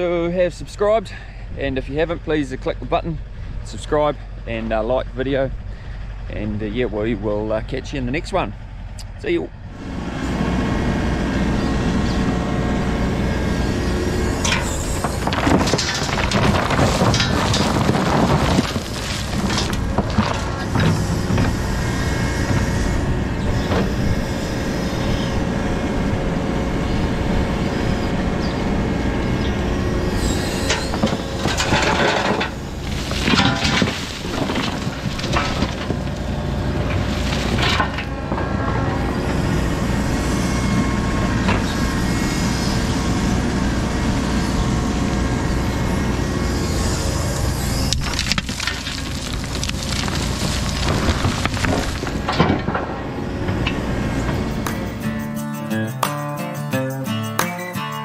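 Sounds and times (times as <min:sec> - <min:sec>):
excavator engine running: 0:00.0 - 0:57.9
gravel pouring into trailer: 0:14.6 - 0:21.2, 0:31.2 - 0:38.2, 0:48.0 - 0:52.7.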